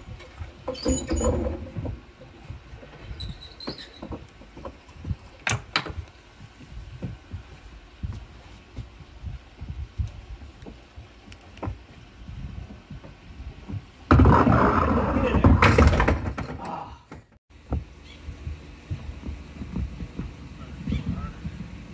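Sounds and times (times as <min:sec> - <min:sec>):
bowling ball rolling rumble: 0:12.2 - 0:16.6, 0:17.7 - 0:21.9
bowling ball rolling on rail: 0:12.5 - 0:16.5.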